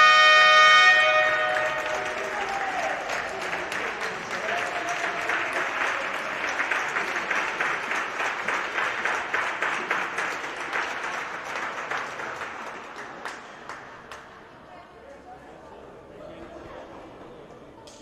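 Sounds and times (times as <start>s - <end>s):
crowd applauding: 0.8s - 14.4s.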